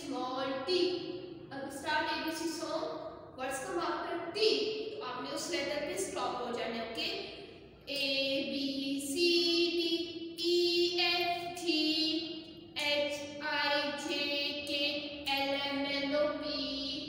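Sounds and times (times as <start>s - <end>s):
woman singing children's song: 0.0s - 0.9s, 7.9s - 17.0s.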